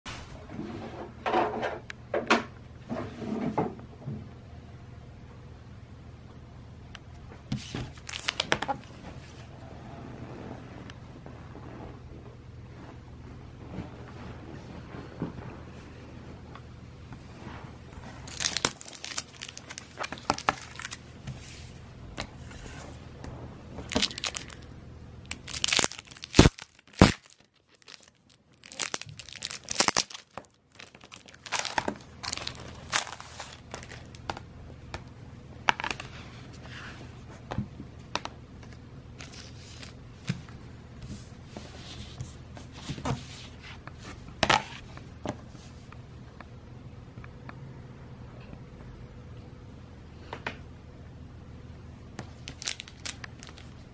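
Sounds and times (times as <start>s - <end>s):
plastic bag crinkling and tearing: 7.6s - 9.0s, 18.0s - 21.6s, 23.8s - 34.2s, 52.4s - 53.8s.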